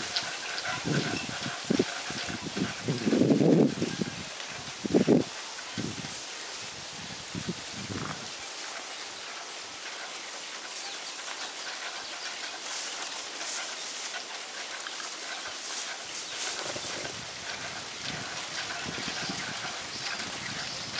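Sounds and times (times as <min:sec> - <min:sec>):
steady high hiss: 0:00.0 - 0:20.9.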